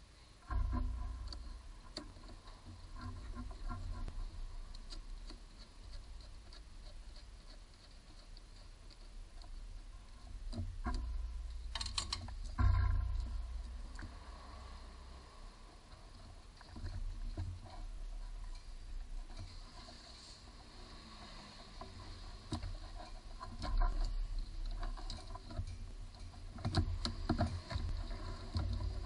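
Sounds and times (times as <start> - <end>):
hands handling wiring: 0.0 - 20.6, 21.6 - 29.0
dull thump: 10.4 - 14.5.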